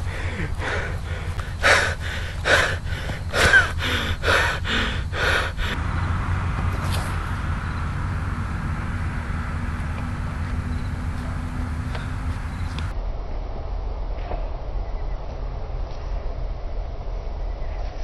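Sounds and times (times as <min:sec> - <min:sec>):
person panting hard: 0:00.0 - 0:05.8
low background rumble: 0:00.0 - 0:17.8.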